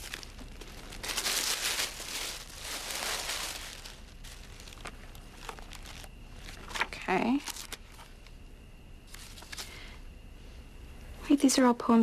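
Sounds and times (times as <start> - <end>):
tissue paper crinkling: 0.0 - 8.1.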